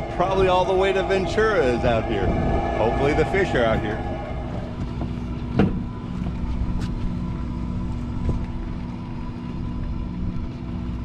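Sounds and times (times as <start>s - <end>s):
boat machinery humming: 0.0s - 11.0s.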